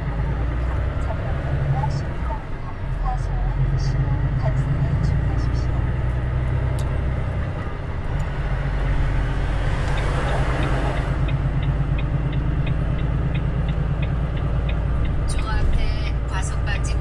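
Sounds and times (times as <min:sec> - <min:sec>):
truck diesel engine running: 0:00.0 - 0:17.0
turn signal clicking: 0:09.8 - 0:15.7.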